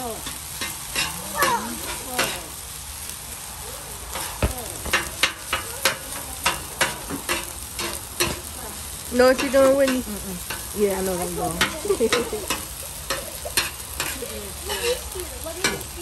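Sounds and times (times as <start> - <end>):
rice sizzling on griddle: 0.0 - 16.0
metal spatulas clicking and scraping: 0.2 - 1.6, 5.0 - 8.4, 11.6 - 15.9.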